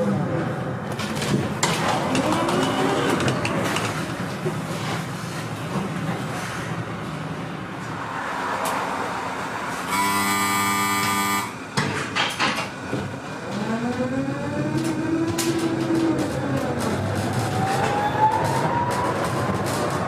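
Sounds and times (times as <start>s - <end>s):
tram doors closing: 0.0s - 20.0s
tram motors whining: 1.6s - 4.2s, 9.7s - 11.8s, 13.0s - 20.0s
buzzing warning tone: 9.9s - 11.6s.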